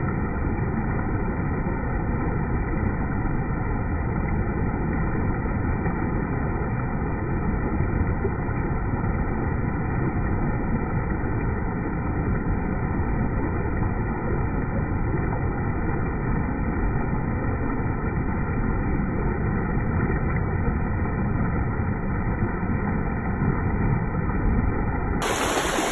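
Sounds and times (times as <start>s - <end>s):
river water rushing over spillway: 25.2s - 25.9s.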